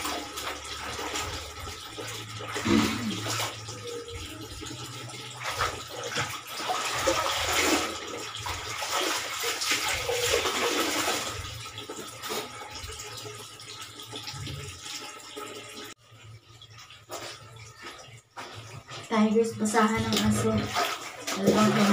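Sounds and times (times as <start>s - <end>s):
water splashing and dripping: 0.0s - 21.9s.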